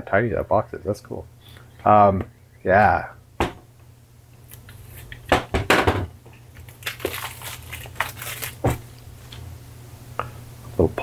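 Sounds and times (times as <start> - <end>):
steady low hum: 0.0 - 11.0
plastic wrap crinkling: 6.3 - 9.4.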